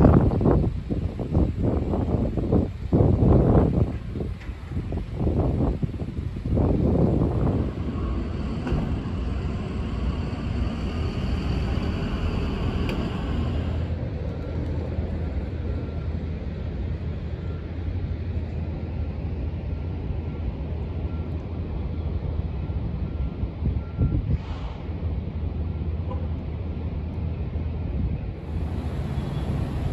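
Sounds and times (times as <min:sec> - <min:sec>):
wind buffeting microphone: 0:00.0 - 0:15.5, 0:22.8 - 0:24.5, 0:27.6 - 0:29.9
traffic rumble: 0:00.0 - 0:29.9.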